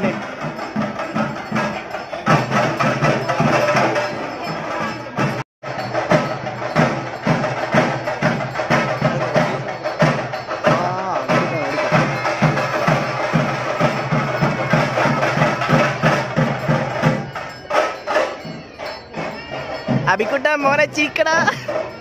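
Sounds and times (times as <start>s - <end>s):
percussion music: 0.0s - 22.0s.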